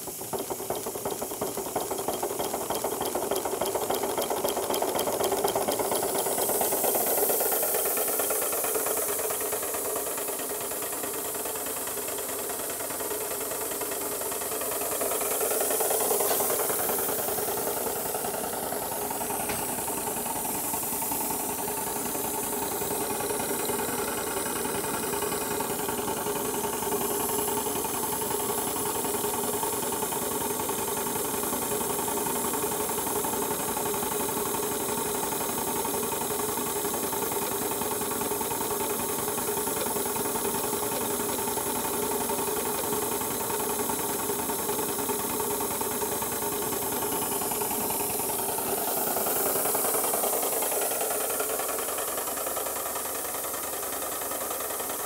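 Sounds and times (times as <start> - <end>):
model locomotive running gear rattling: 0.0 - 55.0
steam hissing: 0.0 - 55.0.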